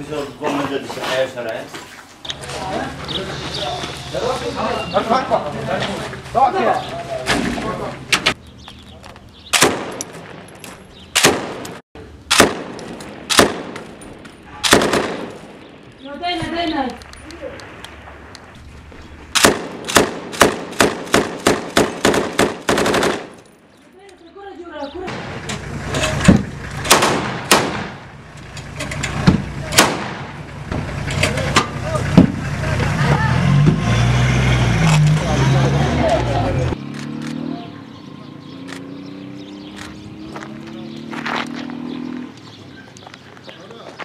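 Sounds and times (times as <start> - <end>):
gunshots: 9.5 - 10.5, 11.1 - 15.8, 19.3 - 23.4, 26.3 - 28.1, 29.7 - 30.4
machine gun shots with echo: 11.2 - 13.8, 14.6 - 15.5, 19.4 - 23.3, 26.8 - 28.0, 29.7 - 30.4
vehicle engine running: 25.1 - 43.2.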